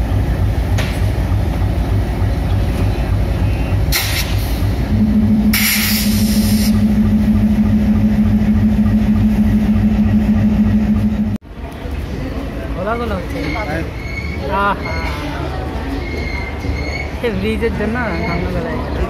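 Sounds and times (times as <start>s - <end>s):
steady low hum: 0.0s - 11.4s
diesel locomotive engine rumbling: 0.0s - 15.0s.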